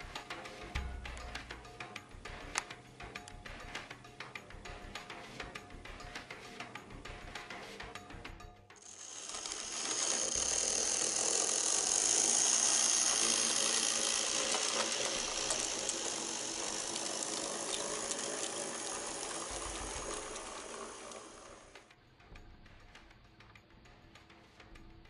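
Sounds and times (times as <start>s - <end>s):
model train running on track: 8.8s - 21.9s.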